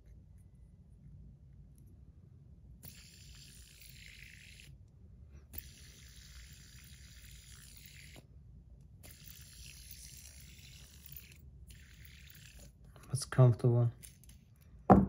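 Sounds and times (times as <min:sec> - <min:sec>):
fidget spinner whirring: 0:02.8 - 0:04.8, 0:05.4 - 0:08.3, 0:08.9 - 0:13.1.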